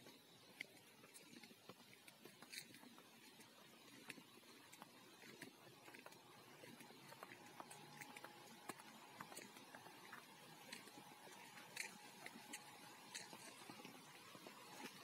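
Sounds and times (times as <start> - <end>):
footsteps on leafy dirt path: 0.0 - 15.0.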